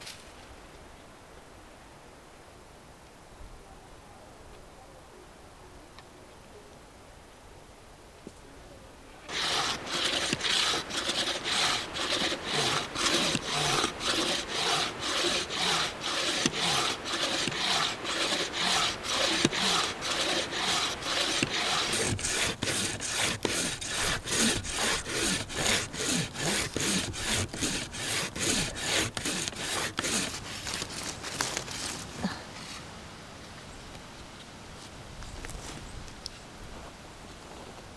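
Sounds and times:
hand saw rasping through log: 9.3s - 31.8s.

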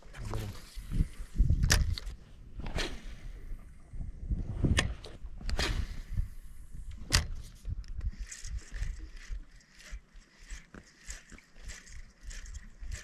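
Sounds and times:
wind rumble on microphone: 0.0s - 9.4s
fishing reel whirring clicks: 7.8s - 13.0s.

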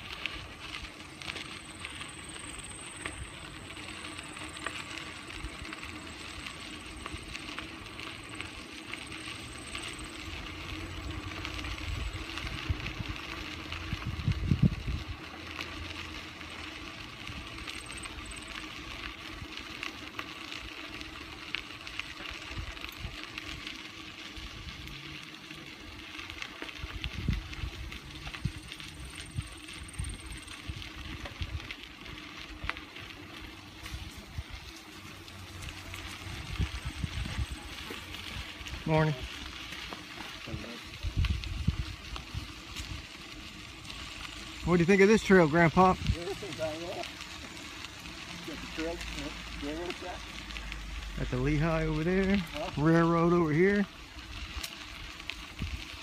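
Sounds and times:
bicycle tyres crunching on gravel: 0.0s - 56.0s
low rumble: 46.0s - 52.9s.

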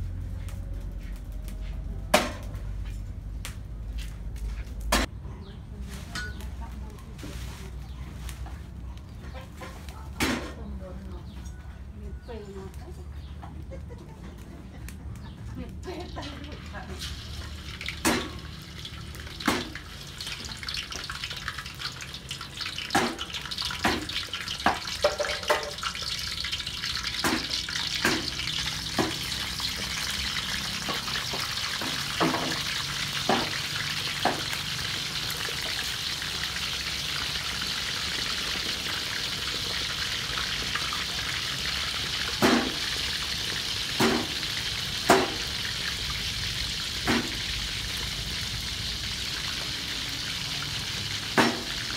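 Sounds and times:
fish sizzling in hot oil: 15.8s - 51.9s.

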